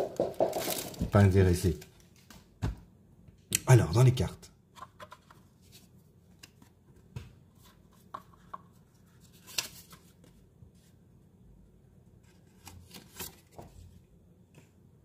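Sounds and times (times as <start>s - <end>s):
paper rustling: 7.6s - 11.0s, 12.2s - 13.9s.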